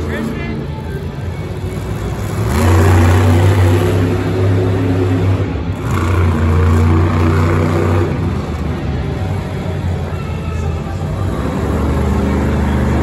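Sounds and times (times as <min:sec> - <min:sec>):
monster truck engine revving: 0:00.0 - 0:13.0.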